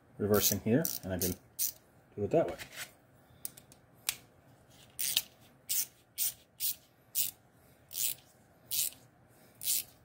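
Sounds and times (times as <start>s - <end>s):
ratchet clicking: 5.0s - 9.0s, 9.6s - 9.9s.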